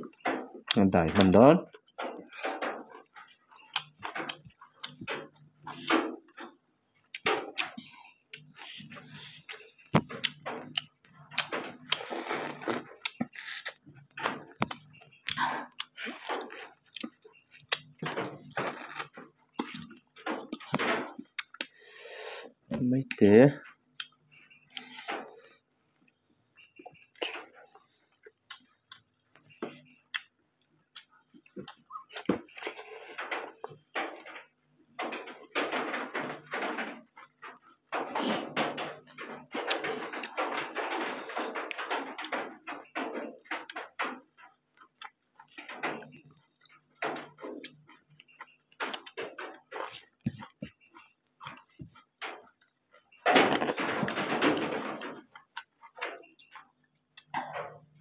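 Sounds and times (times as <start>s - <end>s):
food crunching: 8.3s - 21.8s.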